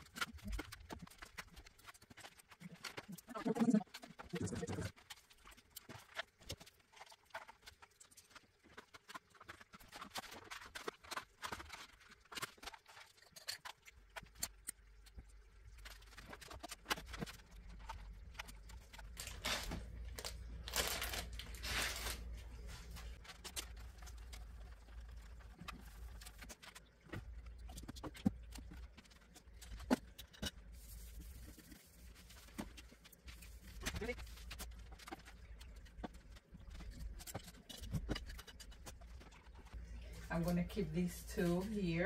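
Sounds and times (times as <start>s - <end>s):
packaging rustling: 15.8s - 27.3s.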